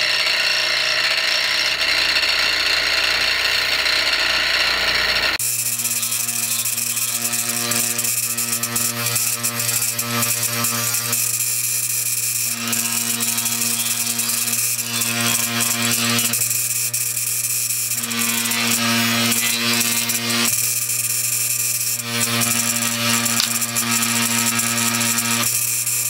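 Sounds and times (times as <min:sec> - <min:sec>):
abrasive wheel grinding metal: 0:00.0 - 0:07.3, 0:22.6 - 0:24.3
electric motor hum: 0:22.0 - 0:25.4.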